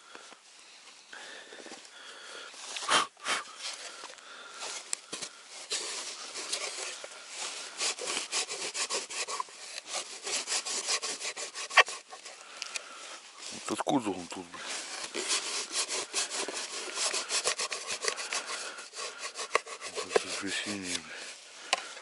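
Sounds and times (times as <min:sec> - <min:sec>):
cloth wiping plastic: 0:19.5 - 0:21.0.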